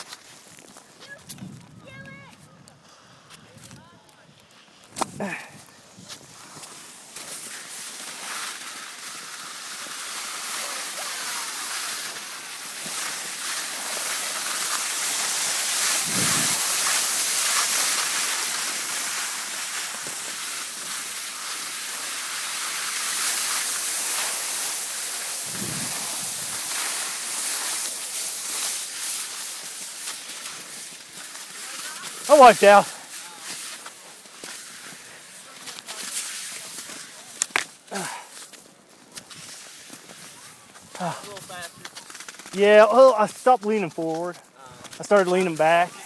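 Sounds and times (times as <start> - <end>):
skis hissing over snow: 0.0 - 46.0
wind on microphone: 1.2 - 2.7, 16.0 - 16.6, 25.4 - 26.6.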